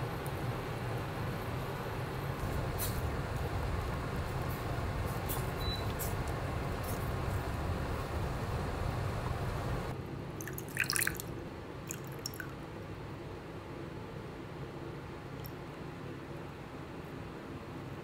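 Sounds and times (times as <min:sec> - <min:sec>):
water boiling in pot: 0:01.0 - 0:12.6
water dripping: 0:10.4 - 0:11.3, 0:11.9 - 0:12.6
water pouring into glass bowl: 0:10.4 - 0:11.3, 0:11.9 - 0:12.6.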